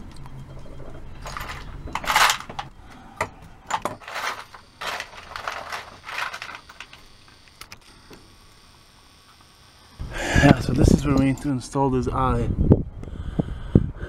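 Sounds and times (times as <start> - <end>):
metal hardware clinking and rattling: 1.2 - 2.7, 3.7 - 7.0.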